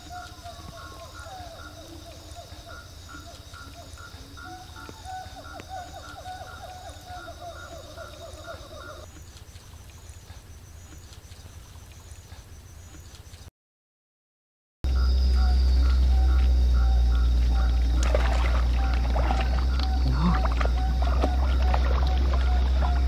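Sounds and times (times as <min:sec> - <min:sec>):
frogs chirping: 0:00.0 - 0:13.5, 0:14.8 - 0:23.0
insects buzzing: 0:00.0 - 0:13.5, 0:14.9 - 0:23.0
low steady rumble: 0:14.9 - 0:23.0.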